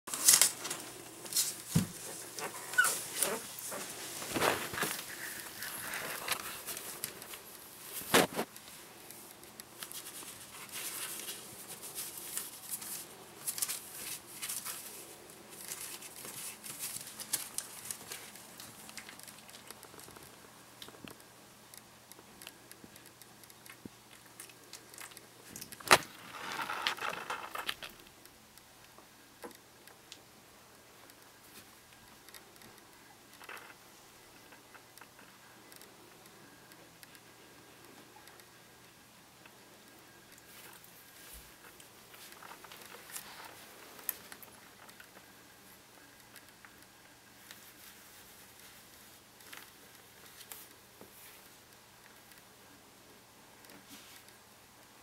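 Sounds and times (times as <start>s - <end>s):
newspaper crackling and rustling: 0.1s - 20.4s, 25.0s - 28.1s.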